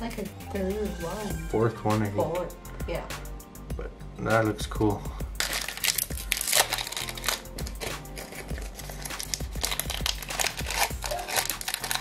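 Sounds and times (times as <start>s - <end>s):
background music with bass line: 0.0s - 12.0s
foil wrapper crinkling and tearing: 5.4s - 12.0s.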